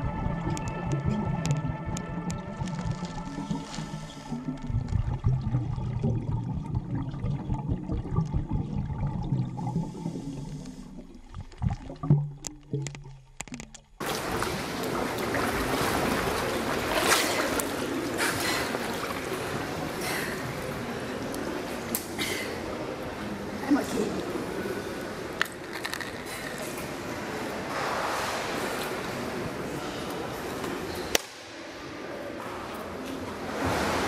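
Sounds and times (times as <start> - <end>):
muffled underwater rumbling: 0.0 - 16.9
water sloshing: 0.0 - 22.0
water splashes: 0.0 - 23.6, 31.4 - 34.0
sharp clicks underwater: 0.5 - 5.4, 10.5 - 14.0.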